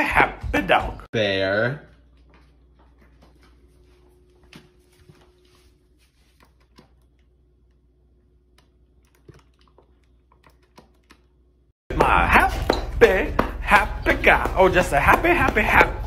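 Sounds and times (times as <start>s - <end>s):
dog feet on tiled floor: 1.8s - 7.3s, 11.9s - 16.0s.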